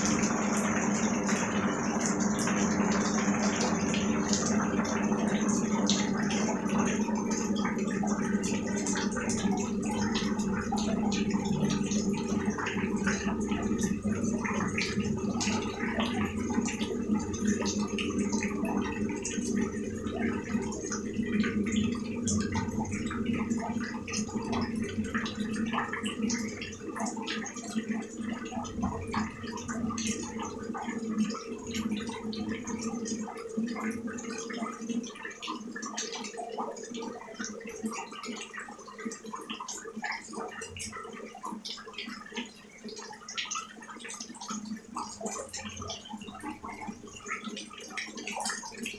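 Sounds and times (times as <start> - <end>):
rain splashing on wet surface: 0.0 - 37.6.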